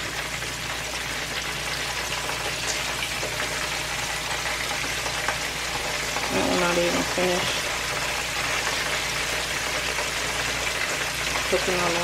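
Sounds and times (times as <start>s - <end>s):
chicken frying in hot oil: 0.0s - 12.0s.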